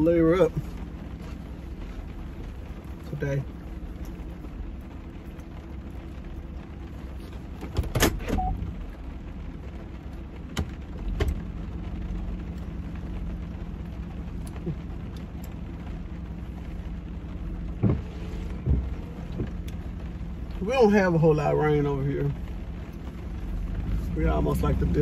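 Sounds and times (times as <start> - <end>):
car cabin low hum: 0.0 - 25.0
rain falling on car: 0.0 - 25.0
short knocks and bumps: 17.6 - 19.9.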